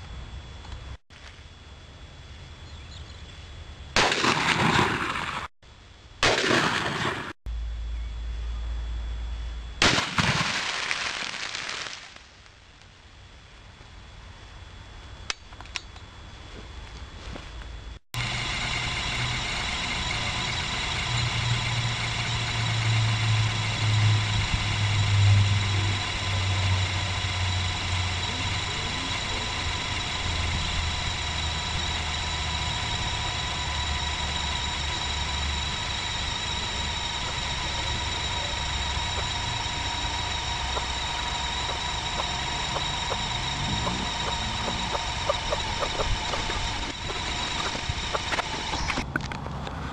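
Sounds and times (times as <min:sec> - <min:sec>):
engine running: 0:16.6 - 0:49.9.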